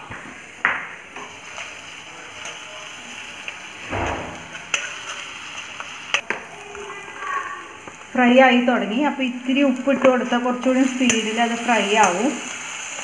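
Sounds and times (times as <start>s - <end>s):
food sizzling in oil: 1.2s - 13.0s
metal spoon scraping pan: 4.1s - 6.2s.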